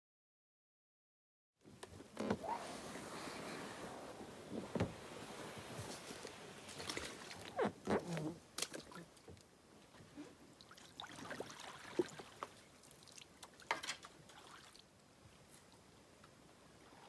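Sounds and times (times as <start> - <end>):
water sloshing and dripping: 6.0 - 14.9.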